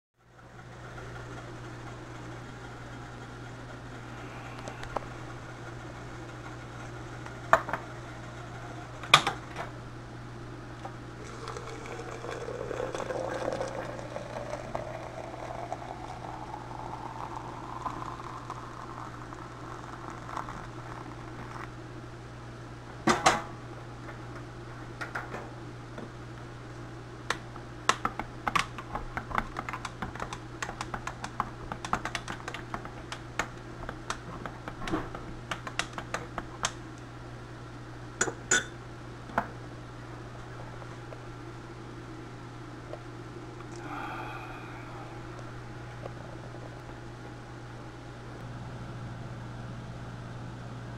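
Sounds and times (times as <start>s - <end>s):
steady low hum: 0.2s - 50.9s
water pouring into glass press: 11.2s - 20.8s.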